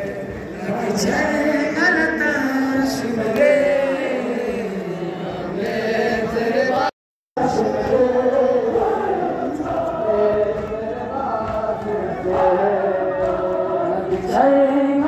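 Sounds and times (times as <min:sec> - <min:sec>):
crowd of men chanting: 0:00.0 - 0:15.0.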